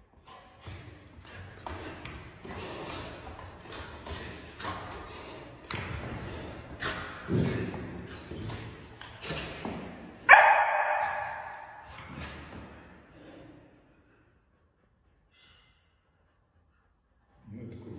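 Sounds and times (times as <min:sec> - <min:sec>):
loud echoing bark: 0:10.2 - 0:12.0.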